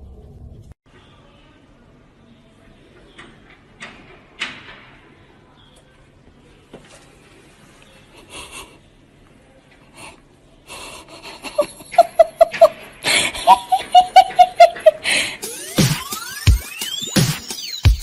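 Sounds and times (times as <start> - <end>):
person laughing hard: 11.1 - 15.4.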